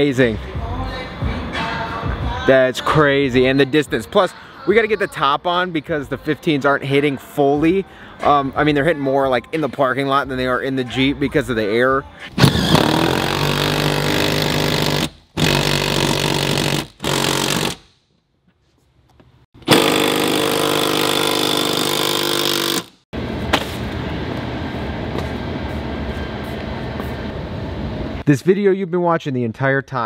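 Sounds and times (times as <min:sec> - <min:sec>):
power tool running: 0:12.4 - 0:17.9, 0:19.6 - 0:23.0.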